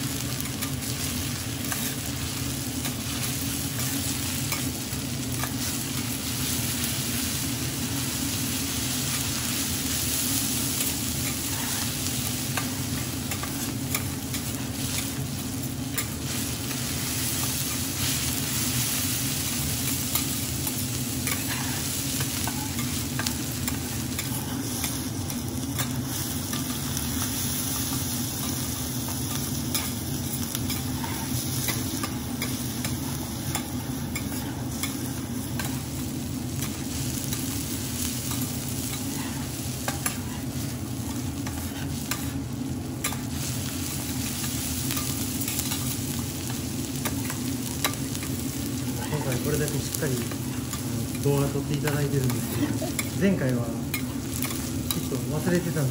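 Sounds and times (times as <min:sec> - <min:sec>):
rice sizzling on a griddle: 0:00.0 - 0:55.9.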